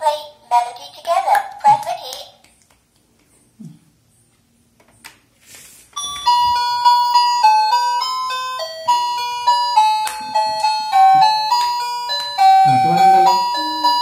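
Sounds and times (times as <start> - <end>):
toy laptop beeping melody: 6.0 - 14.0.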